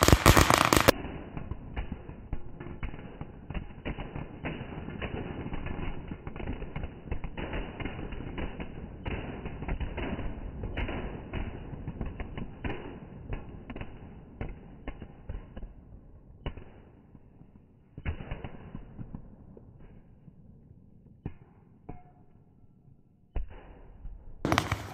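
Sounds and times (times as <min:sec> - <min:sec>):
firecrackers crackling: 0:00.0 - 0:15.8, 0:24.5 - 0:24.9.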